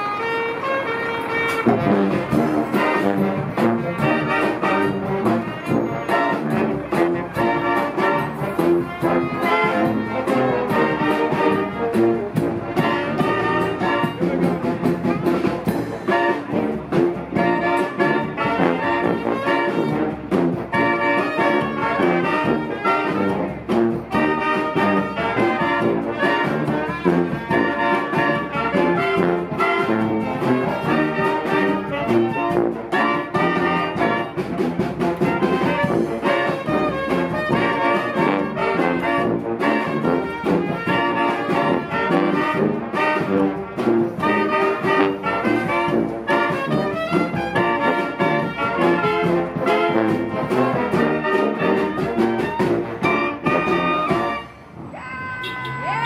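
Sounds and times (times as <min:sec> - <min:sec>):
marching band playing: 0:00.0 - 0:56.0.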